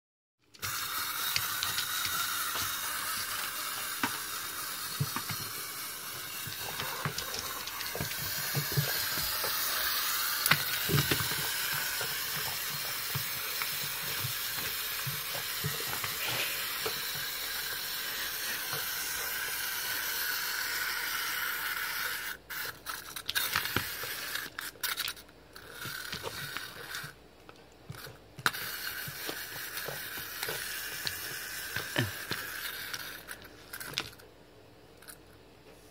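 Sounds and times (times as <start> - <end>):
puppy paws scrabbling on wood: 6.4 - 16.2.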